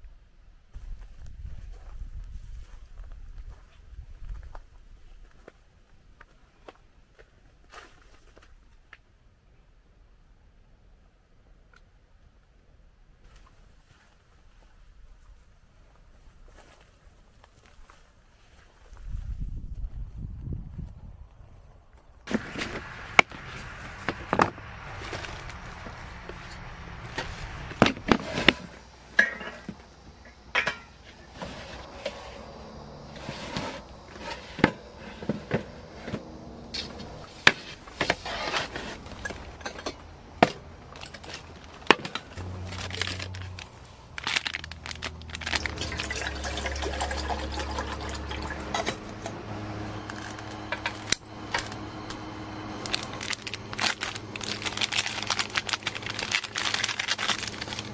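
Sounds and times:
cookware clinking and knocking: 30.5 - 31.0
water being poured: 44.7 - 49.3.

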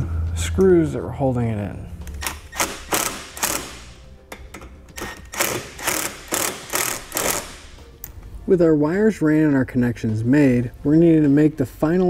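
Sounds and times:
screwdriver clicking: 2.1 - 4.4, 5.0 - 7.7.

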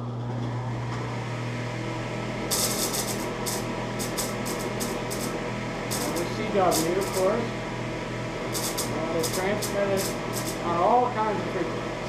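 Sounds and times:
spinning wheel hum: 2.3 - 7.6, 8.3 - 11.0
rasping spark bursts: 2.5 - 7.4, 8.5 - 10.7.

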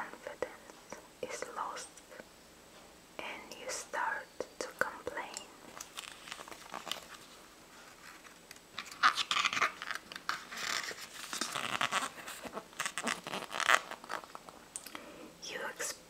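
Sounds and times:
book pages turning: 5.7 - 14.6.

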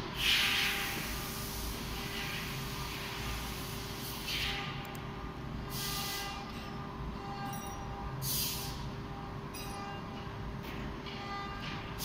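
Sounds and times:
workshop machinery hum: 0.0 - 12.0
short bursts of hiss: 5.7 - 6.3.

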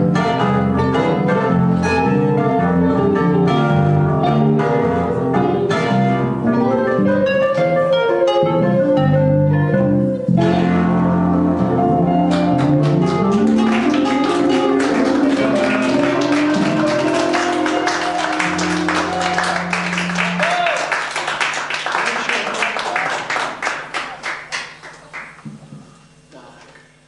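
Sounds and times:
electric guitar blues-rock: 0.0 - 19.7
keyboard accompaniment: 0.0 - 21.6
audience clapping: 12.2 - 25.5.

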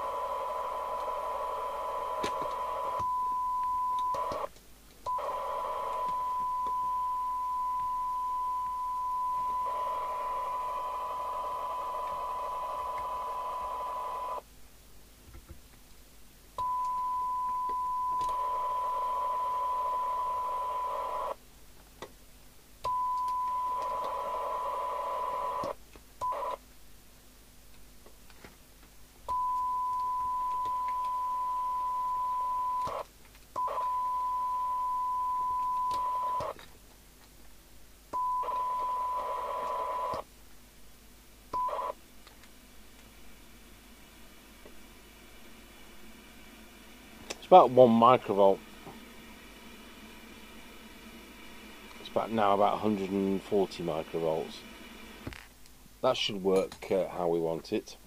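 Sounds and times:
radio hiss: 0.0 - 4.5, 5.1 - 6.6, 7.5 - 14.4, 17.6 - 21.4, 23.6 - 26.6, 38.4 - 40.3, 42.8 - 58.0.

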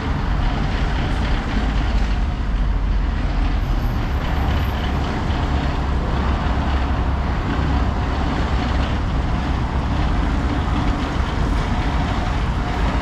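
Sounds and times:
city street traffic rumble: 0.0 - 13.0.

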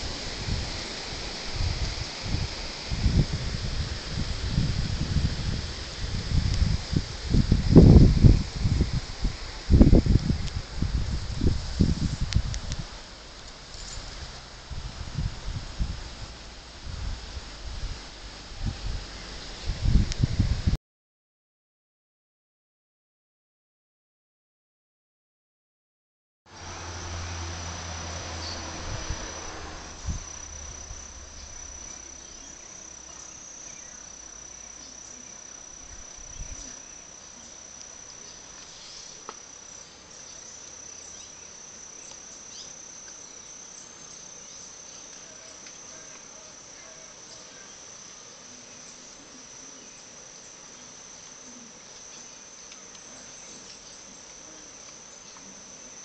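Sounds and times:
high-pitched insect trill: 0.0 - 13.0, 26.5 - 56.0.

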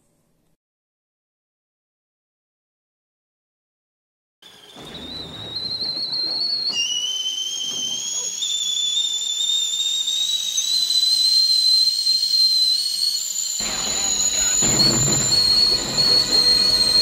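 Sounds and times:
high-pitched rising whistling tone: 4.4 - 17.0.

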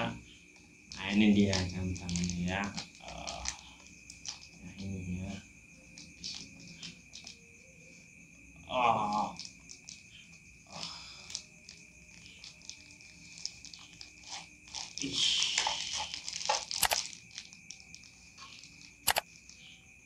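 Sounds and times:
plastic packaging crinkling: 0.9 - 4.9, 5.8 - 7.6, 9.1 - 19.6
sharp clicks: 16.8 - 17.0, 19.0 - 19.3.

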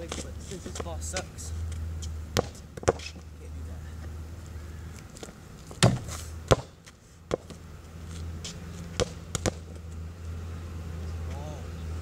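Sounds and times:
ball bouncing on pavement: 0.0 - 3.3, 5.0 - 10.0.

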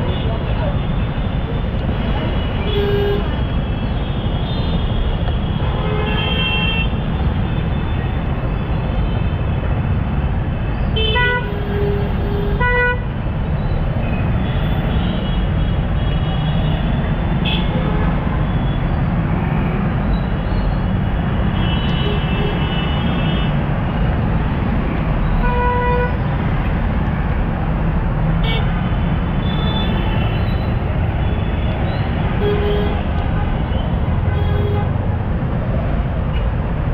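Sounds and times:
vehicle horns honking: 11.0 - 13.1, 25.4 - 26.2.

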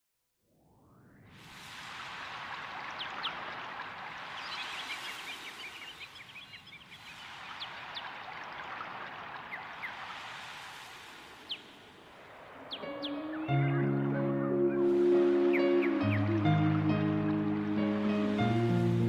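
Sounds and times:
small birds chirping: 4.2 - 10.1, 11.4 - 11.8, 12.5 - 17.5.

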